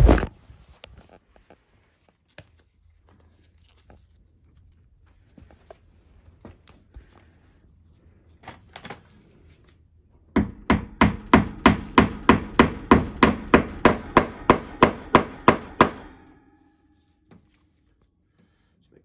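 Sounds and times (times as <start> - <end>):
hammer tapping: 10.4 - 16.4.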